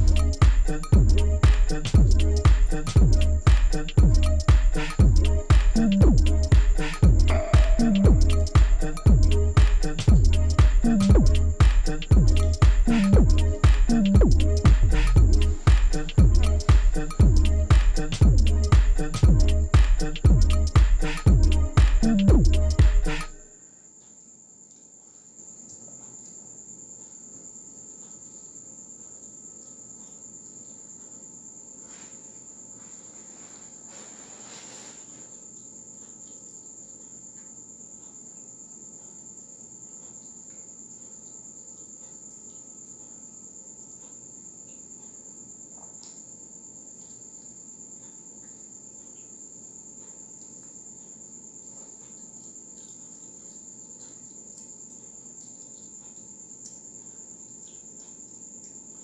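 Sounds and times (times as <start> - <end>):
steady high-pitched whine: 0.0 - 23.6.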